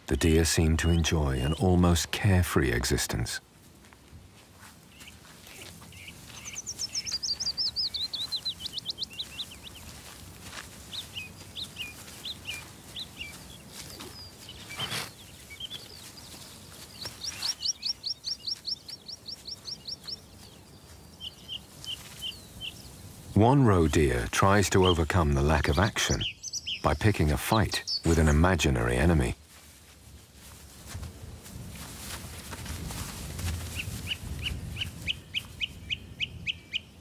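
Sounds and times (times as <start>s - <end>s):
songbird trills: 4.9s - 28.7s, 33.7s - 37.0s.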